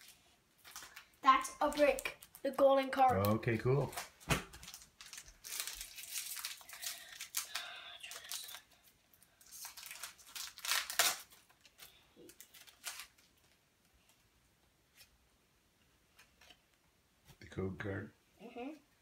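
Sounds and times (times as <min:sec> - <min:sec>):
foil wrapper tearing and crinkling: 0:04.0 - 0:13.6.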